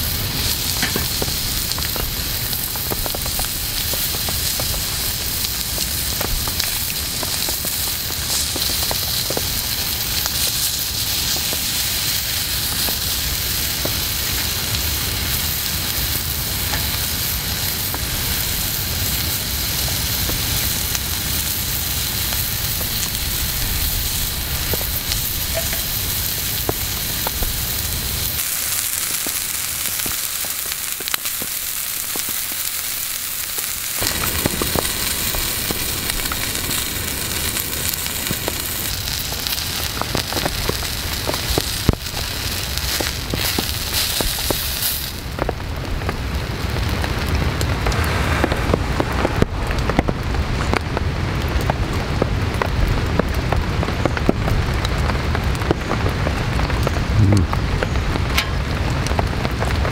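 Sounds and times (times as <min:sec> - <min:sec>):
meat sizzling on a griddle: 0:00.0 - 0:47.3.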